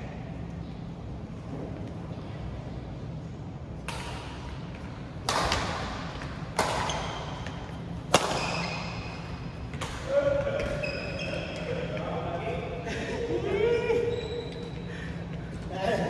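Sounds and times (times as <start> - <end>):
steady low hum: 0.0 - 16.0
racket hitting shuttlecock: 3.8 - 4.6, 5.2 - 10.8.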